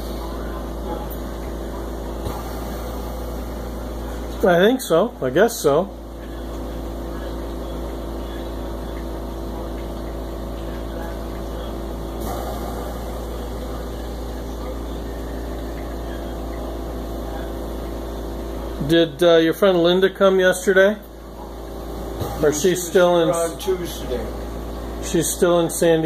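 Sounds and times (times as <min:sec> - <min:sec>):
oxygen concentrator humming: 0:00.0 - 0:26.0.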